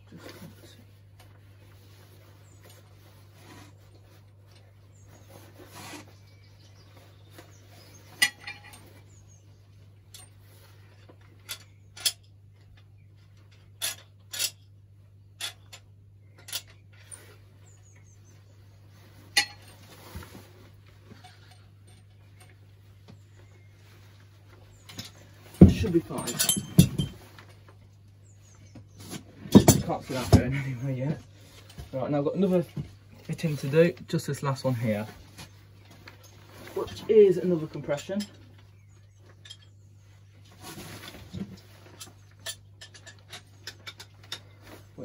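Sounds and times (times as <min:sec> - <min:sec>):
metal tools clinking on fittings: 0:08.2 - 0:08.9, 0:10.1 - 0:10.4, 0:13.5 - 0:14.7, 0:24.9 - 0:27.3, 0:41.8 - 0:44.4.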